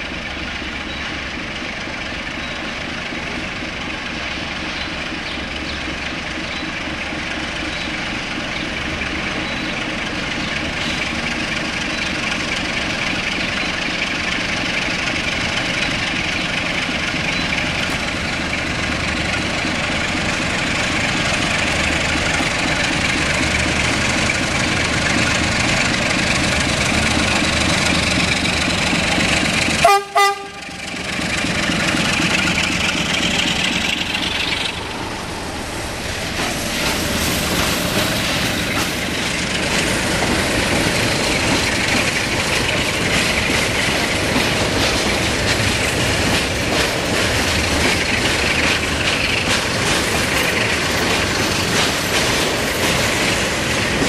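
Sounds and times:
diesel locomotive engine running: 0.0 - 54.0
train wheels clacking over rail joints: 0.0 - 54.0
locomotive horn blast: 29.8 - 30.9.

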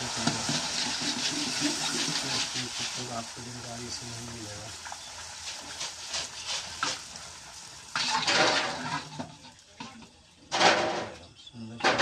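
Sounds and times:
hot oil frying: 0.0 - 12.0
metal ladle scraping iron pan: 0.1 - 2.9, 7.9 - 11.2.

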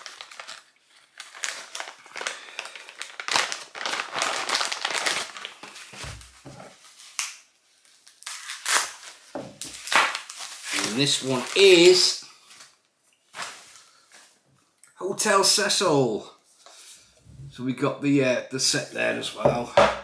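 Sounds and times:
packaging bag crinkling: 0.0 - 7.2, 8.0 - 12.7.

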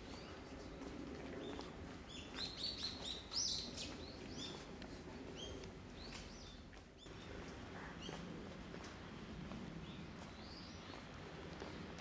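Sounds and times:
small birds chirping: 1.4 - 8.3, 9.8 - 11.9.

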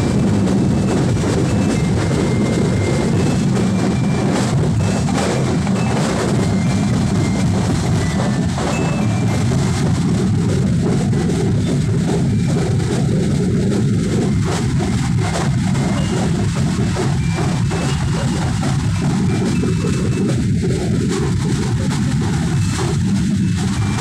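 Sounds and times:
street drumming: 0.0 - 24.0.

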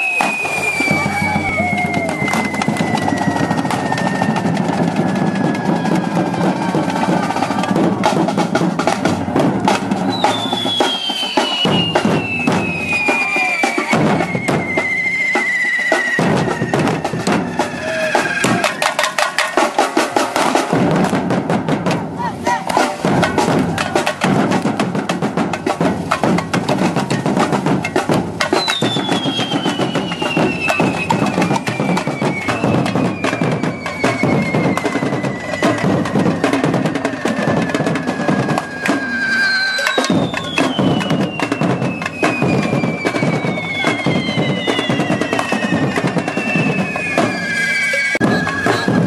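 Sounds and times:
firework whistles sliding down: 0.0 - 7.6, 10.0 - 19.4, 28.5 - 49.0
fast loud drumming: 0.0 - 49.0.

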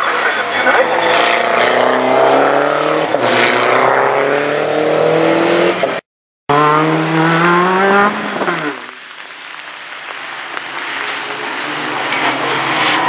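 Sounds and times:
race car engine accelerating: 0.0 - 9.0.

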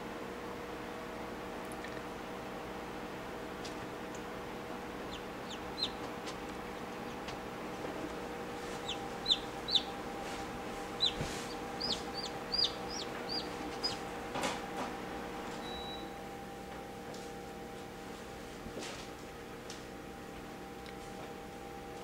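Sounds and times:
incubator hum: 0.0 - 22.0
chick peeping: 5.0 - 7.3, 8.7 - 10.0, 10.9 - 14.0.

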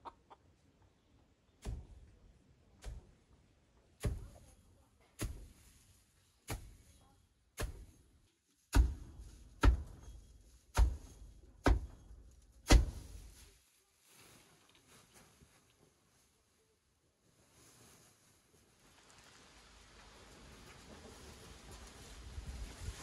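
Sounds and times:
pitchfork crunching dry hay: 5.2 - 7.0, 7.6 - 13.5.

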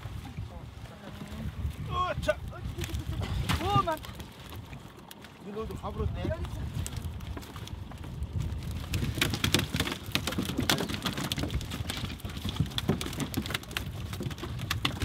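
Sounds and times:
fish flopping and slapping on deck: 2.6 - 5.4, 6.2 - 15.0.

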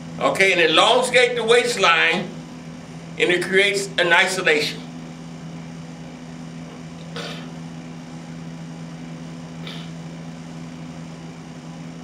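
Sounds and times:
low machine hum: 0.0 - 12.0
breathy exhalations: 9.6 - 10.0.

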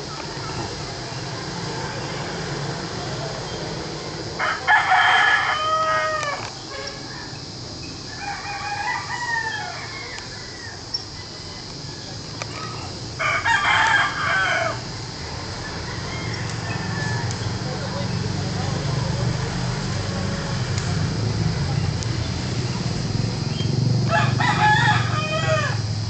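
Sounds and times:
rooster crowing: 4.4 - 19.1, 24.0 - 26.0.

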